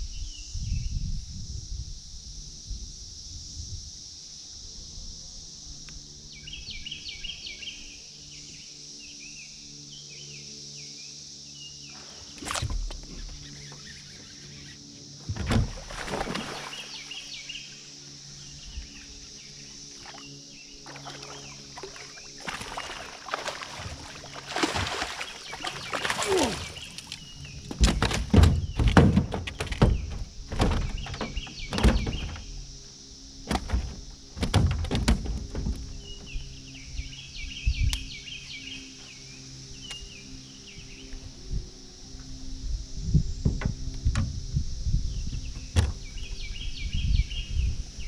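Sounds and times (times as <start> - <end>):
steady high hiss: 13.1 - 23.4
knocks and thuds on boat hull: 15.2 - 16.4, 27.6 - 32.6, 33.4 - 36.4, 43.4 - 44.4.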